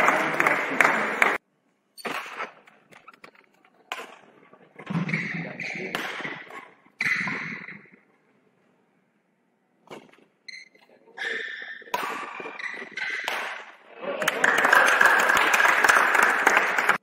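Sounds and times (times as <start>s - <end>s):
racket striking shuttlecock: 3.9s - 4.3s, 5.0s - 7.7s, 11.8s - 13.8s
shoes squeaking on court: 9.9s - 13.4s.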